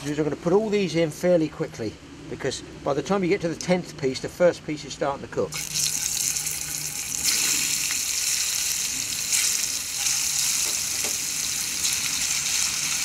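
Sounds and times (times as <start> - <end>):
fish sizzling in oil: 5.6 - 13.0.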